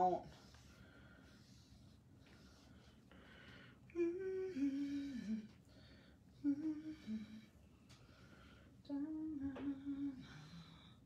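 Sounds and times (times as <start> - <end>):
woman humming a tune: 3.9 - 5.5, 6.4 - 7.5, 8.9 - 10.8.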